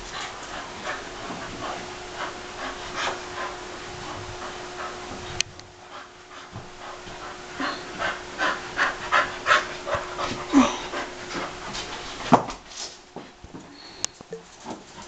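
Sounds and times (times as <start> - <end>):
dog panting rapidly: 0.0 - 12.0.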